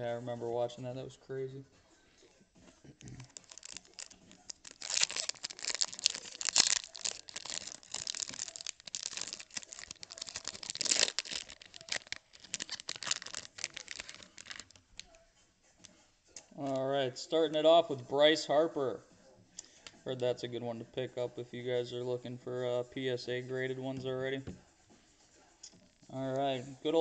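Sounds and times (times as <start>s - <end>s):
foil wrapper and cards crinkling: 3.1s - 15.1s.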